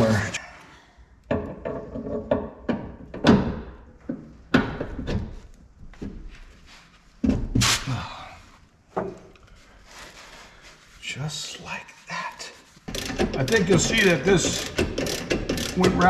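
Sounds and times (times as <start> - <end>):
hand tools knocking on metal: 12.9 - 16.0.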